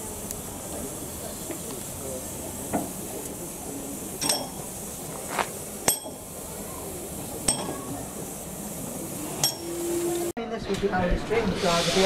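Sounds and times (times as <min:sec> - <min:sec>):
steady steam hiss: 0:00.0 - 0:10.3, 0:11.4 - 0:12.0
sharp metallic clinks: 0:04.2 - 0:04.7, 0:05.8 - 0:06.4, 0:07.4 - 0:07.9, 0:09.4 - 0:09.8.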